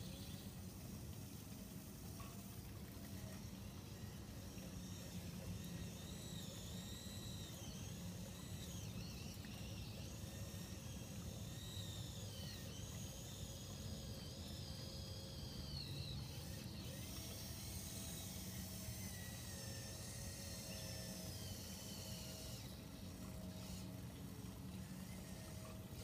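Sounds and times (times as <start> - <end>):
motors and gears whining: 0.0 - 26.0
steady low hum: 0.0 - 26.0.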